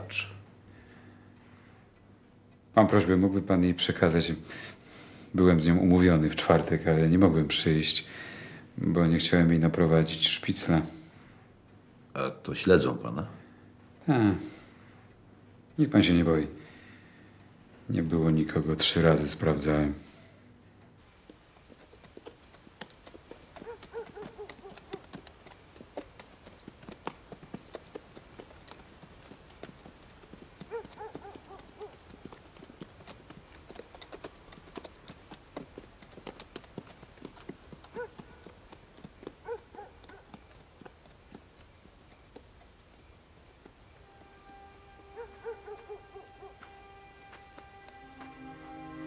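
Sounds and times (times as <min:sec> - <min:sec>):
horse hooves clip-clopping: 0:20.8 - 0:49.0.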